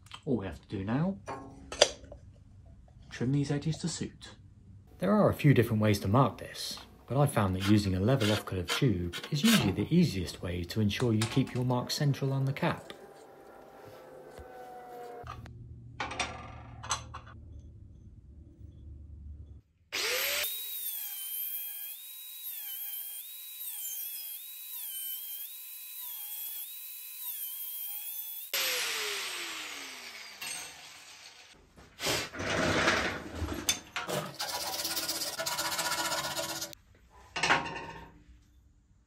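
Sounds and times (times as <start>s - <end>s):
angle grinder cutting metal: 11.1s - 15.5s, 20.0s - 31.6s, 34.3s - 36.8s
harsh scraping of metal edge: 11.4s - 15.5s.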